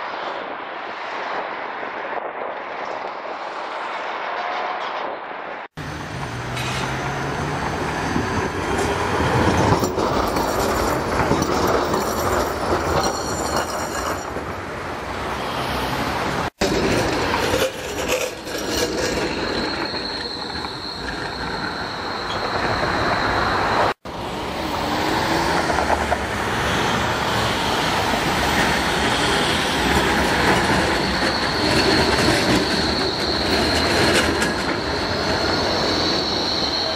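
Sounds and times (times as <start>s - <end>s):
street traffic: 5.5s - 36.9s
tram wheels rumbling over rails: 5.8s - 36.9s
high steady squeal: 16.8s - 36.9s.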